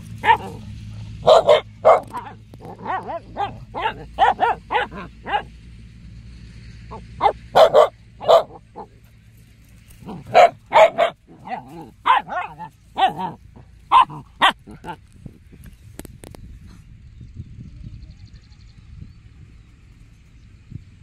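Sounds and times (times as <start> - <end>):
dogs play-barking: 0.0 - 5.6, 6.9 - 15.2.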